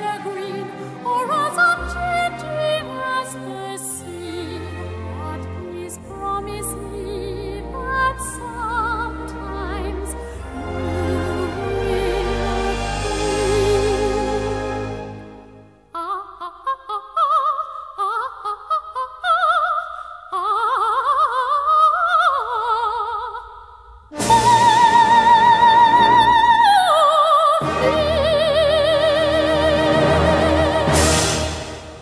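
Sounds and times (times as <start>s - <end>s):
orchestra playing: 0.0s - 15.8s, 24.1s - 26.8s, 27.6s - 32.0s
soprano singing: 0.0s - 32.0s.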